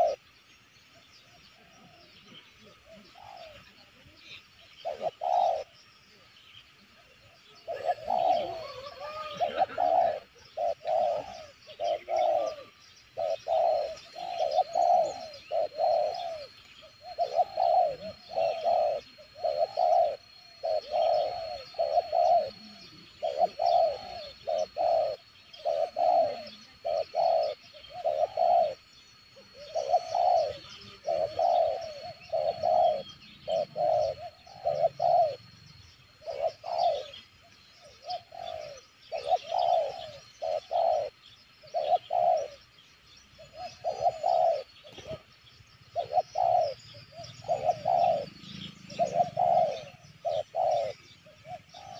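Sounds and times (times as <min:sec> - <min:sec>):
dove cooing: 0:00.0 - 0:00.3, 0:01.2 - 0:51.9
thin steady high tone: 0:00.0 - 0:51.9.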